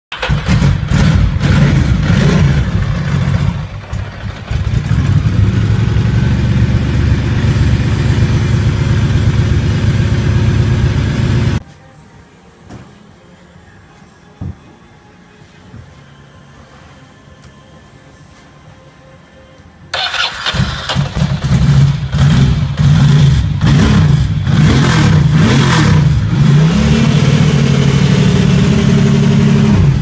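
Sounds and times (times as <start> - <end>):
motorcycle engine running: 0.1 - 11.6, 20.0 - 30.0.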